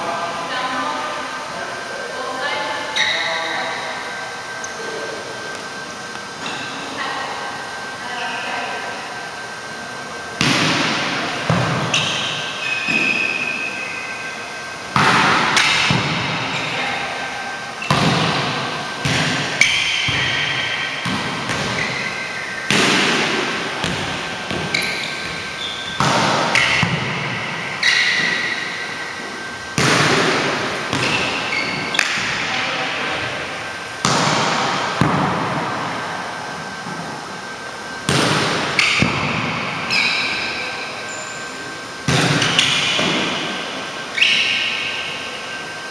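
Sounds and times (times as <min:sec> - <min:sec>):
shoe squeaks: 0:02.9 - 0:03.9, 0:11.9 - 0:14.4, 0:21.7 - 0:22.7, 0:24.6 - 0:26.8, 0:27.7 - 0:29.2, 0:31.0 - 0:32.1, 0:39.8 - 0:41.6, 0:44.1 - 0:45.0
volleyballs smacked: 0:10.4 - 0:12.2, 0:14.9 - 0:16.3, 0:17.9 - 0:21.8, 0:22.6 - 0:27.4, 0:29.7 - 0:32.4, 0:34.0 - 0:35.6, 0:38.1 - 0:39.6.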